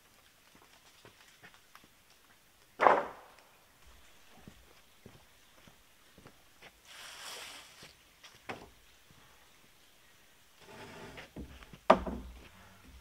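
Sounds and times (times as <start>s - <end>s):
rasping wooden slide: 10.6s - 11.5s
wooden boards knocking and scraping: 10.6s - 13.0s.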